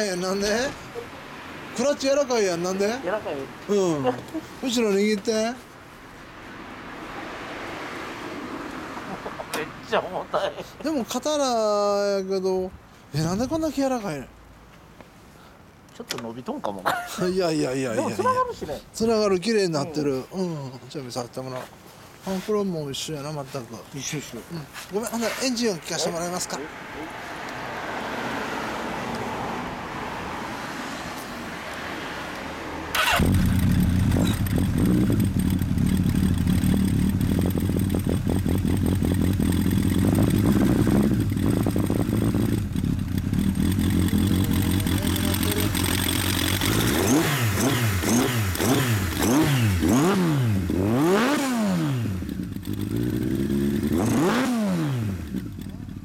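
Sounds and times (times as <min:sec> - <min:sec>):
motorcycle engine revving: 0:32.9 - 0:56.0
motorcycle engine idling: 0:33.0 - 0:47.0, 0:52.3 - 0:53.7, 0:55.2 - 0:56.0.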